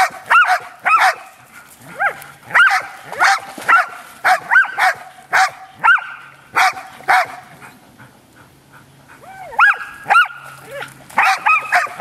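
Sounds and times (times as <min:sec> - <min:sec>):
dogs barking: 0:00.0 - 0:01.4, 0:02.0 - 0:07.5, 0:09.6 - 0:12.0.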